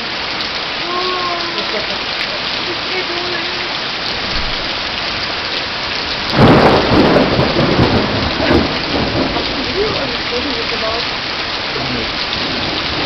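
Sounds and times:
steady rain: 0.0s - 13.0s
loud thunderclap rumbling: 6.1s - 13.0s.

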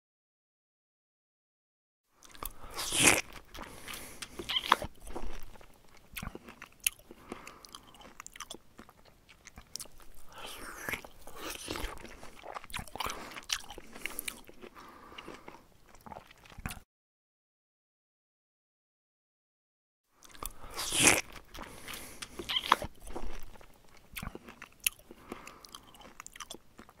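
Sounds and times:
hamster chewing food: 20.2s - 27.0s.

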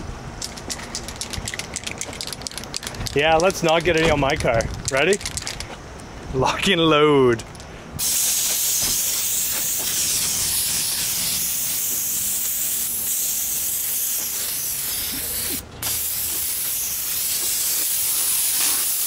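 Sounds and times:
aerosol can spraying hiss: 8.0s - 19.0s.

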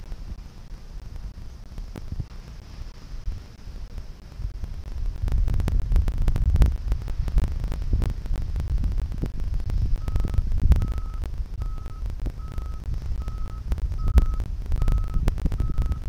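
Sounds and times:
wind buffeting microphone: 0.0s - 16.0s
reversing alarm beeping: 10.0s - 16.0s.

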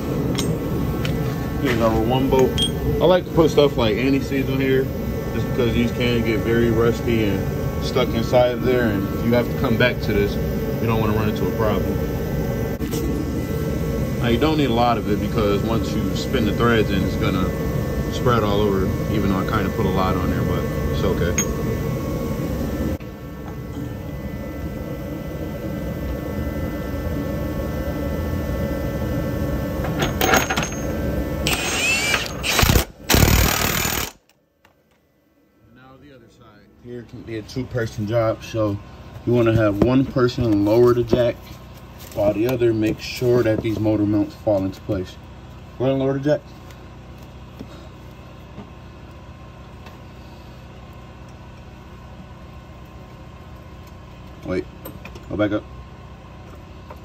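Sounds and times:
low mechanical hum: 0.0s - 57.0s
power tool motor whine with rattling: 29.8s - 34.4s.

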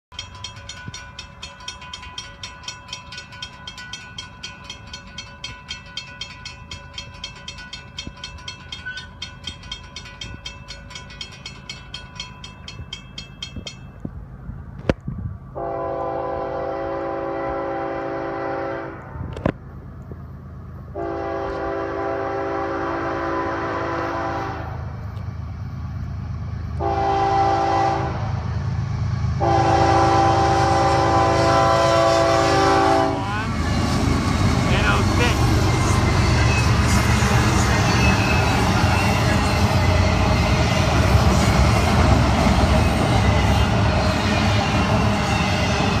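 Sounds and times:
crossing bell dinging: 0.1s - 14.3s, 31.2s - 42.0s
low train rumble: 0.1s - 46.0s
train horn blasts: 15.6s - 19.3s, 20.9s - 24.9s, 26.8s - 28.4s, 29.4s - 33.4s.

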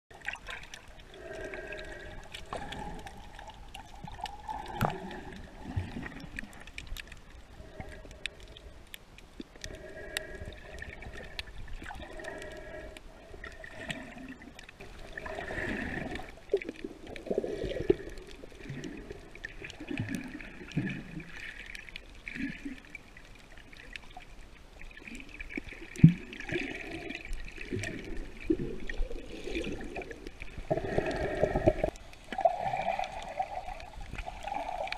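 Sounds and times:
muffled underwater gurgling: 0.1s - 6.7s, 25.0s - 34.9s
faint clicks: 1.7s - 14.9s.

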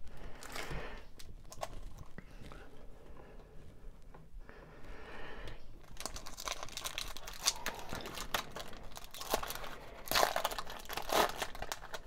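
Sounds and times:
foil wrapper tearing and crinkling: 5.8s - 12.0s.

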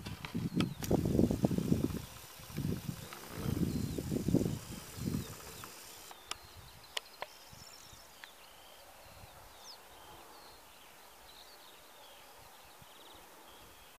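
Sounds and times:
small birds chirping: 0.0s - 13.9s
sharp clicks: 0.1s - 7.4s.

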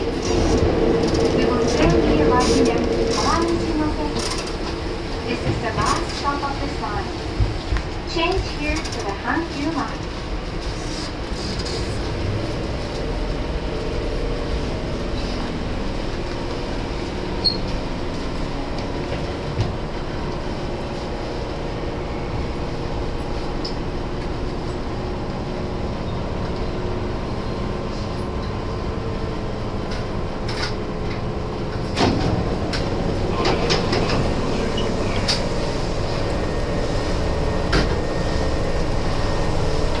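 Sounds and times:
train running gear hum: 0.0s - 40.0s.

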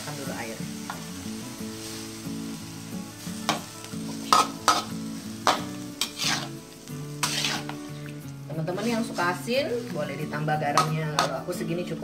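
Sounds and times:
sizzling in a hot pan: 0.0s - 12.0s
metal spatula scraping a wok: 3.4s - 11.4s.

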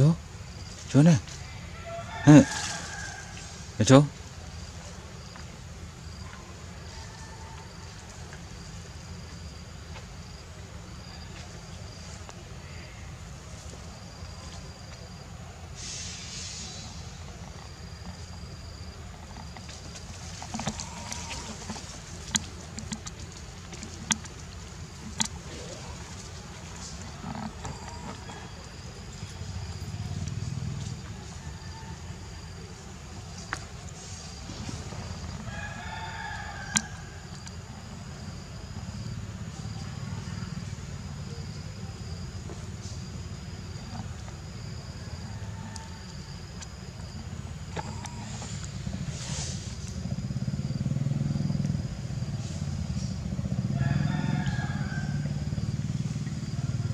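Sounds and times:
insects trilling: 0.0s - 56.9s
dry leaves crackling: 0.8s - 3.7s
low steady rumble: 7.6s - 56.9s.

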